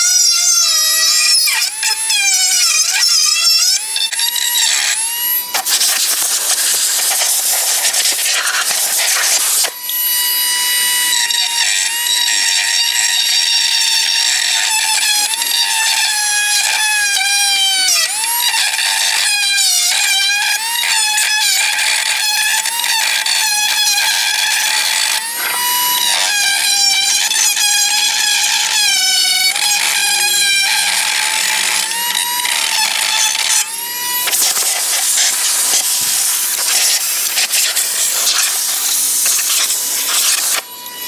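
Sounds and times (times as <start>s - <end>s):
tool scraping gasket squealing: 0.0s - 41.0s
rough scratching: 5.5s - 9.8s, 29.7s - 40.7s.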